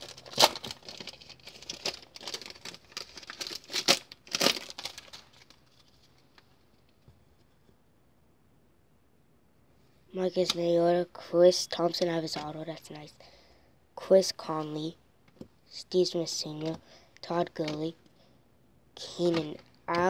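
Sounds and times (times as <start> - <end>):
foil wrapper tearing and crinkling: 0.0 - 5.9.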